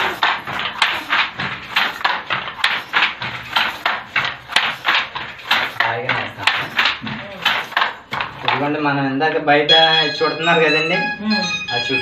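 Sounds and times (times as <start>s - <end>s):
wooden handloom clacking: 0.0s - 8.9s.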